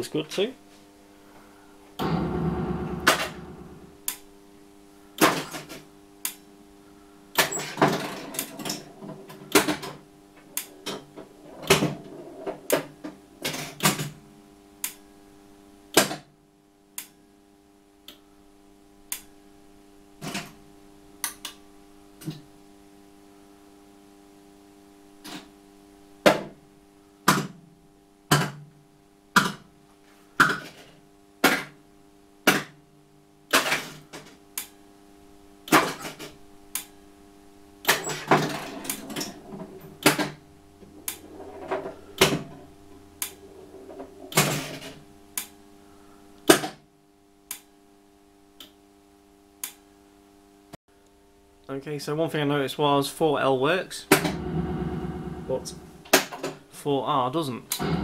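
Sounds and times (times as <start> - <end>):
electrical hum: 0.0 - 15.9, 36.3 - 46.5, 48.6 - 58.0.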